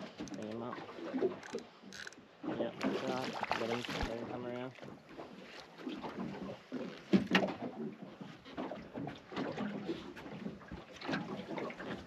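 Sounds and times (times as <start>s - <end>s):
knocks on a boat: 7.1s - 7.6s.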